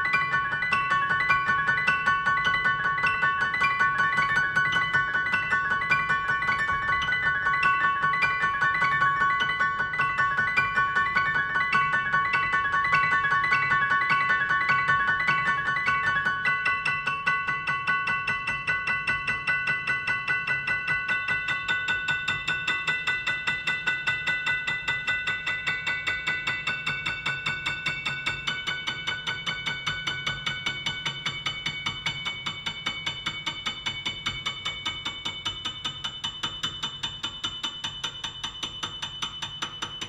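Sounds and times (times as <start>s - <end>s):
quick ticking beat: 0.0s - 40.0s.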